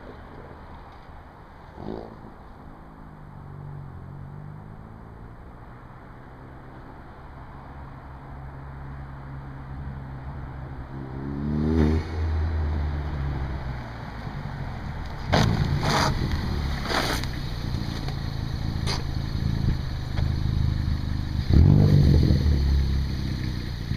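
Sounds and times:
car engine revving: 0:09.2 - 0:23.9
exhaust pops: 0:15.0 - 0:20.6.

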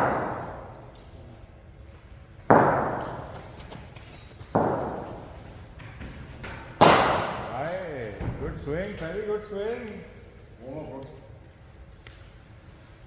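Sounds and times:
cricket ball cracks echoing: 0:06.8 - 0:07.5.

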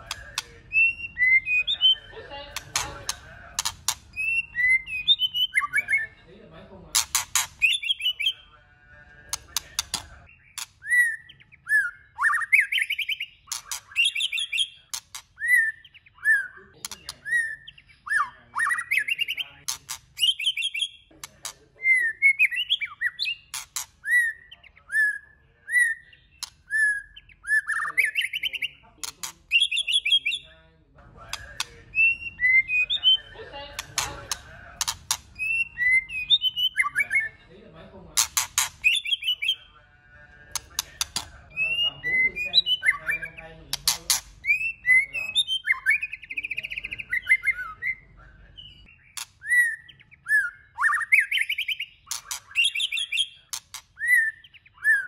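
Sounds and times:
bird singing whistled phrases: 0:00.0 - 0:02.1, 0:04.1 - 0:06.2, 0:07.6 - 0:08.4, 0:09.8 - 0:14.8, 0:15.4 - 0:19.6, 0:20.2 - 0:21.0, 0:21.8 - 0:28.8, 0:29.5 - 0:30.5, 0:31.9 - 0:33.3, 0:35.4 - 0:37.4, 0:38.8 - 0:39.7, 0:41.1 - 0:43.5, 0:44.4 - 0:48.0, 0:48.6 - 0:55.0
sharp clicking bird notes: 0:00.0 - 0:05.8, 0:07.0 - 0:08.3, 0:09.3 - 0:11.4, 0:12.2 - 0:15.7, 0:16.8 - 0:17.8, 0:22.4 - 0:24.3, 0:31.3 - 0:37.1, 0:38.2 - 0:39.6, 0:40.5 - 0:41.8, 0:42.6 - 0:47.6, 0:51.0 - 0:54.6.

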